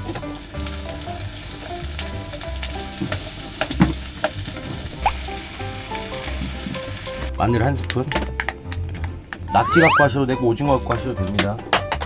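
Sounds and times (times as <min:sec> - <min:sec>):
vegetables sizzling in oil: 0:00.0 - 0:07.3.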